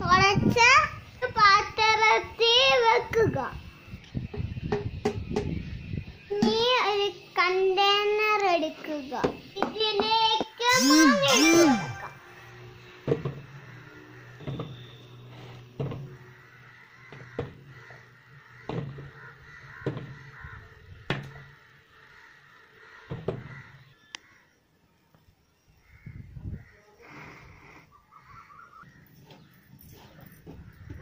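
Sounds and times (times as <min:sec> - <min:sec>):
crows cawing: 0:16.1 - 0:24.6, 0:25.8 - 0:27.4, 0:28.1 - 0:31.0.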